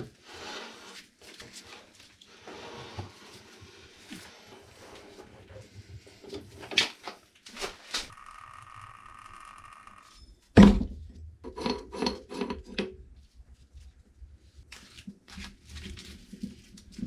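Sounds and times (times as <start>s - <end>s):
objects knocking and clunking: 10.6s - 13.2s.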